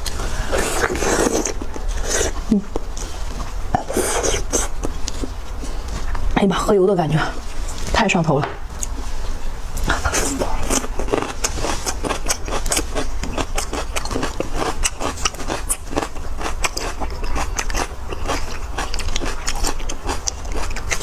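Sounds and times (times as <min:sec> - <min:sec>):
chewing with lip smacks: 0:09.8 - 0:21.0.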